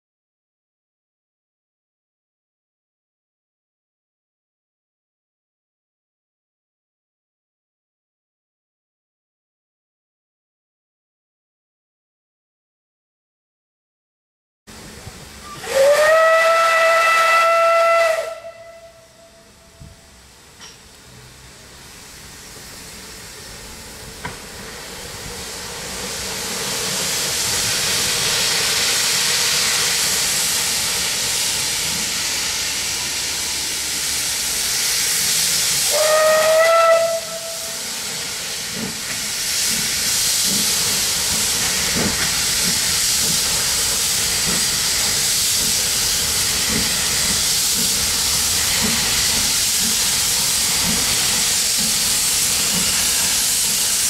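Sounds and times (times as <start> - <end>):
steam locomotive hissing: 14.7 - 54.0
steam locomotive whistle: 15.4 - 20.2, 35.3 - 38.6.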